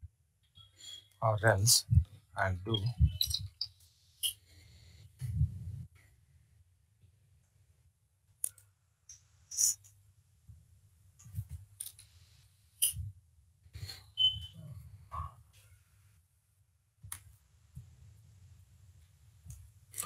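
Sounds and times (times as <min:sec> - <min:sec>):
high beep: 0:02.7 - 0:03.5, 0:14.2 - 0:14.6.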